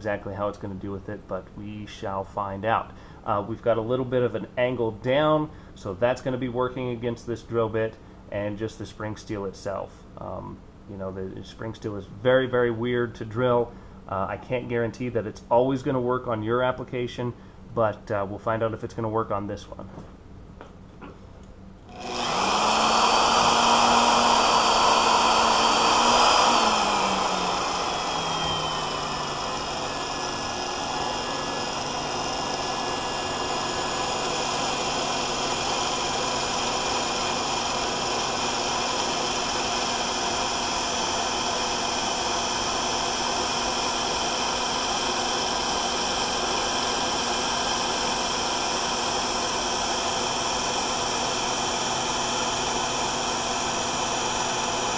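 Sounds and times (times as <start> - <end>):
power drill whining: 21.9 - 54.9.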